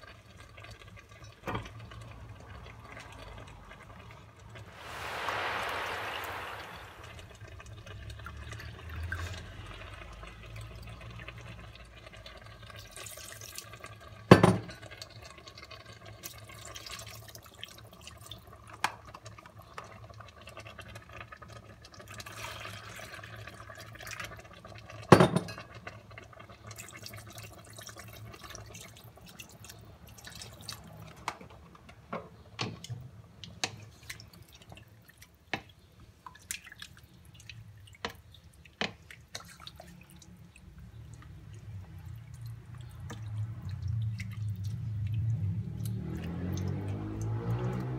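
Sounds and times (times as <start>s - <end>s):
water pouring into a metal pot: 0.1s - 25.1s, 26.4s - 31.2s, 36.4s - 47.9s
wooden spoon stirring a pot: 36.4s - 40.0s.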